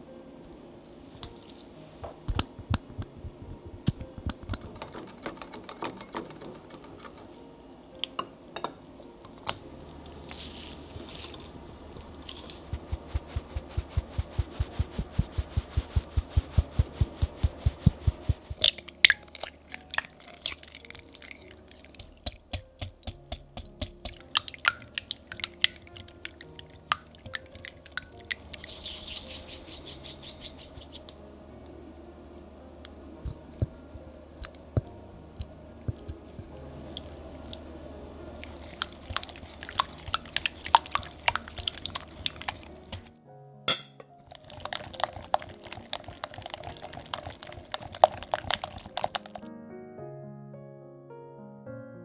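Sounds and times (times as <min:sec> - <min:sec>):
utensil clinking in glass bowl: 0:04.5 - 0:07.4
sieve tapping: 0:21.8 - 0:31.1, 0:43.7 - 0:49.4
whisk clicking against glass bowl: 0:44.5 - 0:49.4.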